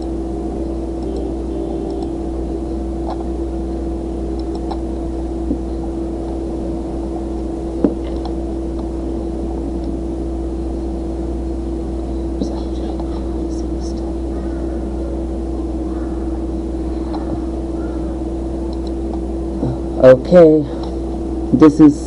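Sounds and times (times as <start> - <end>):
low electrical hum: 0.0 - 22.0
short clicks: 18.7 - 19.2.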